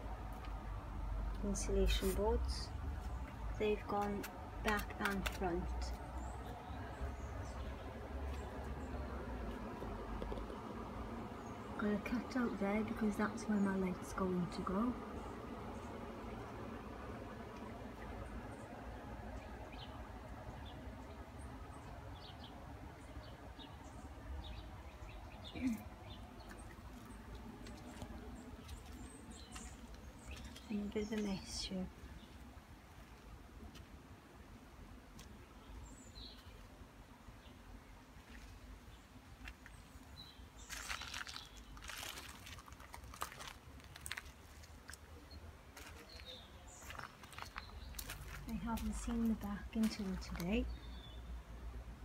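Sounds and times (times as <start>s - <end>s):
low steady rumble: 0.0s - 36.1s
small birds chirping: 1.3s - 34.0s, 35.0s - 51.6s
footsteps on gravel: 26.5s - 31.4s, 40.6s - 50.4s.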